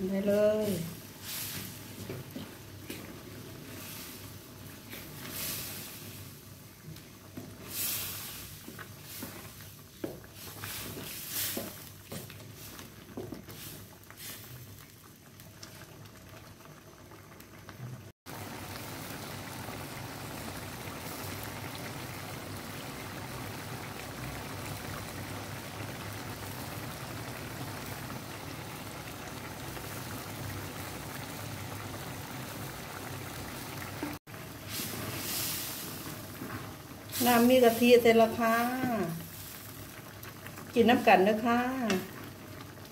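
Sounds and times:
sauce bubbling: 0.7 - 42.9
wooden spatula scraping a pan: 7.4 - 14.6.

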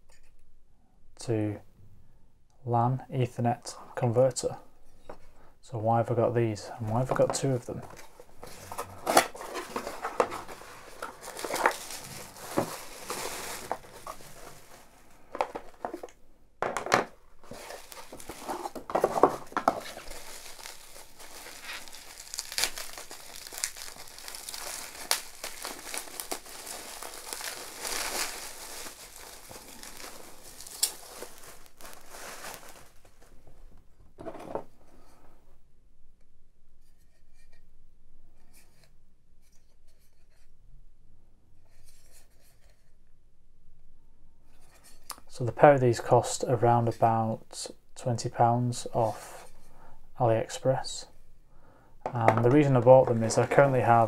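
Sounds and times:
bubble wrap crinkling: 7.8 - 16.1, 17.3 - 33.6, 52.2 - 54.0
packaging knocks: 8.4 - 14.6, 15.3 - 32.9.

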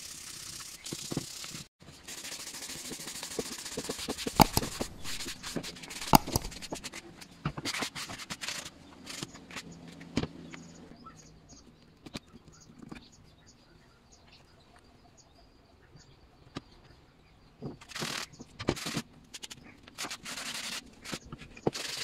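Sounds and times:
sandpaper rubbing on wood: 0.0 - 6.7
sharp knocks: 4.4 - 6.8.

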